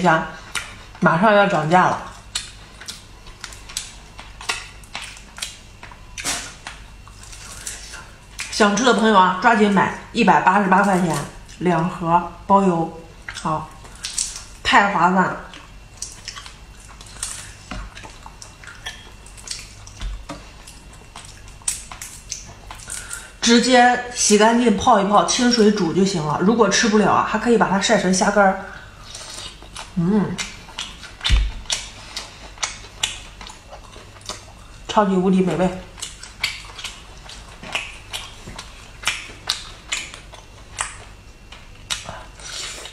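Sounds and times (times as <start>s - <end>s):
chewing with wet mouth smacks: 2.0s - 8.6s, 13.2s - 14.6s, 15.5s - 23.2s, 29.1s - 34.9s, 35.8s - 42.9s.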